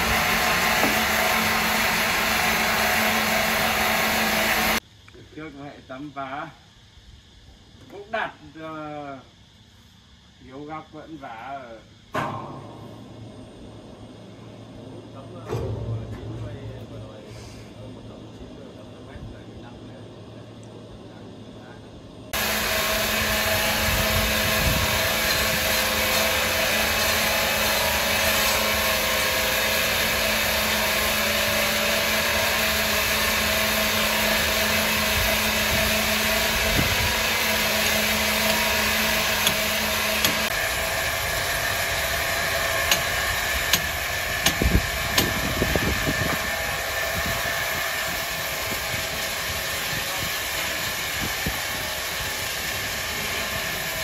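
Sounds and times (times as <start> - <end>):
saw machinery drone: 0.0 - 4.8, 10.6 - 54.0
sharp knocks: 12.1 - 13.2
low hum: 12.1 - 22.7.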